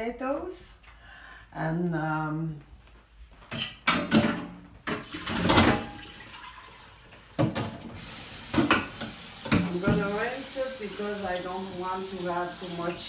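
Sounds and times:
kitchen tap running: 4.8 - 13.0.

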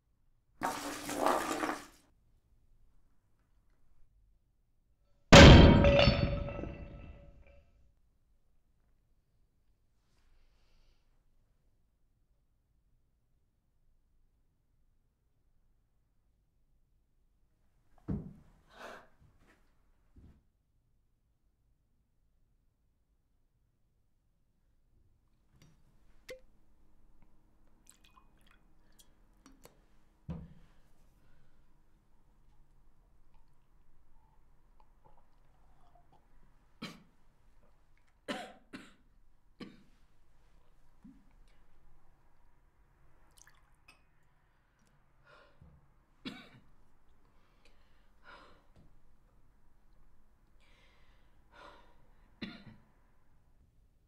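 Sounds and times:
glass clinking: 5.4 - 7.6
liquor pouring into glass: 27.9 - 29.6
woman coughing: 38.3 - 39.0, 46.2 - 46.6
soft breaths and sighs: 47.2 - 49.4.

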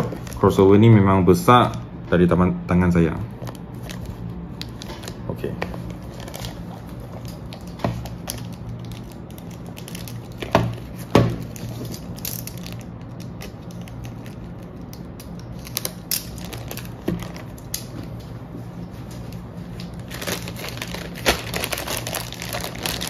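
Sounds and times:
plastic wrapping being slit: 6.1 - 17.9, 20.0 - 23.0.

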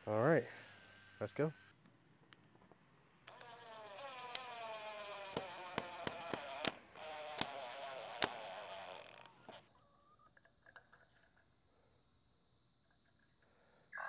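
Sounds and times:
high insect buzz: 3.2 - 10.4
cordless drill driving screws: 3.3 - 9.6
sharp clicks: 5.2 - 8.5.

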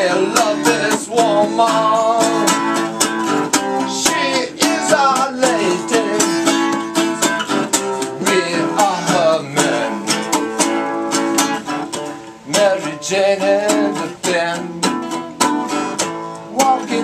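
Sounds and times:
electric guitar strumming: 0.0 - 17.0.

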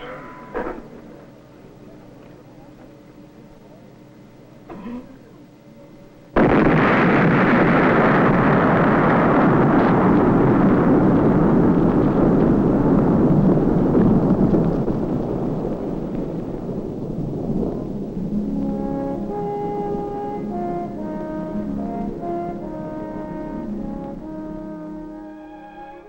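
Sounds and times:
explosion bang and heavy rumble: 6.4 - 25.3.

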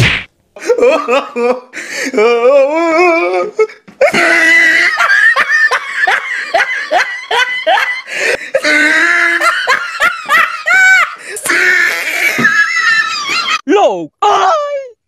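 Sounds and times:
person laughing loudly: 4.0 - 13.6.

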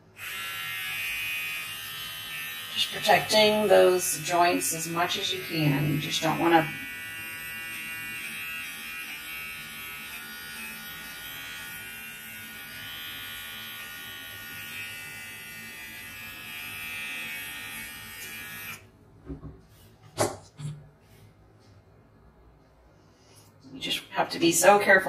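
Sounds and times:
pet trimmer buzzing: 0.2 - 18.9.

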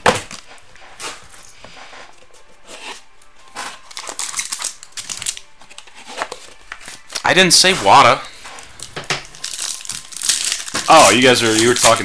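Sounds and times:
hands rustling card box: 0.1 - 12.0
crinkly plastic rustles: 3.6 - 12.0.

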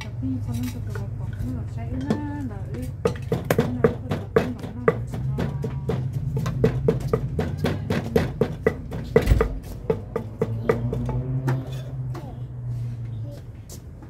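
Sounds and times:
wooden pestle pounding in mortar: 1.3 - 11.7.

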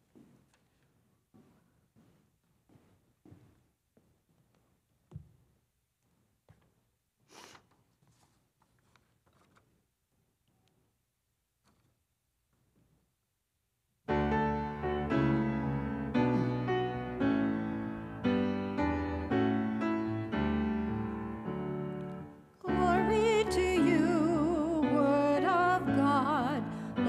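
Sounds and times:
grand piano chords: 14.1 - 27.0
person singing with vibrato: 22.6 - 27.0.

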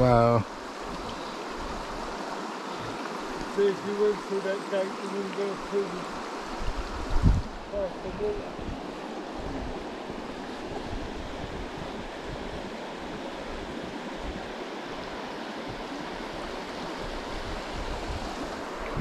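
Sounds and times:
river running: 0.0 - 19.0
wind buffeting microphone: 6.1 - 19.0.

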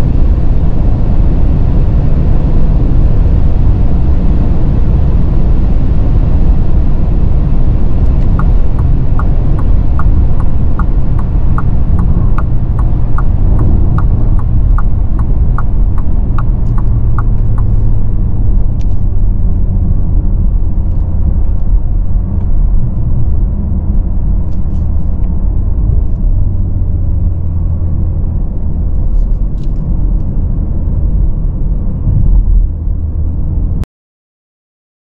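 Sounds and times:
engine and road rumble: 0.0 - 33.8
light regular ticking: 8.0 - 18.0.

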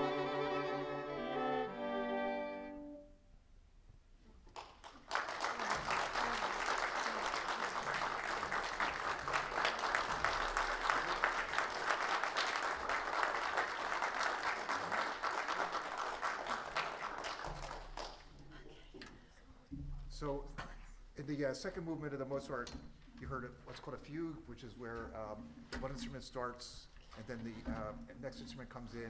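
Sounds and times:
audience applauding: 4.5 - 18.5.

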